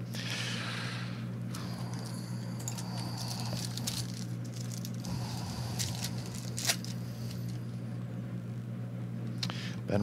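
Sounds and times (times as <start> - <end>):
steady low electrical hum: 0.0 - 10.0
foil wrapper crinkling and tearing: 2.7 - 7.6.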